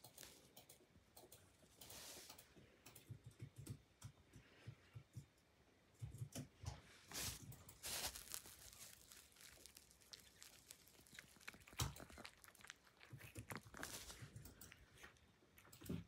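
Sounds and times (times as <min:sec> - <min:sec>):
cat licking carpet: 0:07.1 - 0:16.0.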